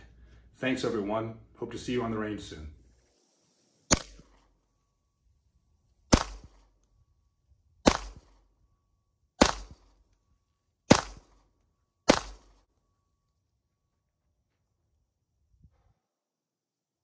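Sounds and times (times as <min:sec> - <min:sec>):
pistol shots with echo: 0:06.1 - 0:06.6, 0:07.8 - 0:08.3, 0:09.4 - 0:09.9, 0:10.9 - 0:11.4, 0:12.1 - 0:12.6.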